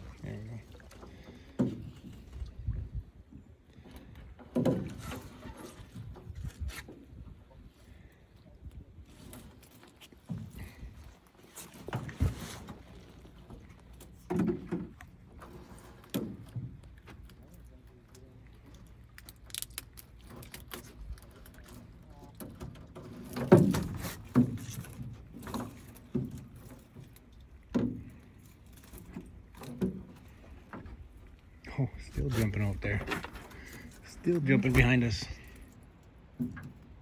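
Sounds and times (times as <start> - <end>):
net and floats knocking on hull: 11.7 - 17.2, 22.4 - 28.2.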